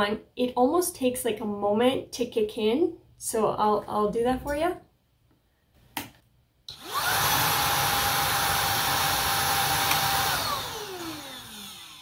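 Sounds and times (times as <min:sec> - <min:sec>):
vacuum motor whining: 0:06.7 - 0:12.0
vacuum switch click: 0:09.8 - 0:10.1.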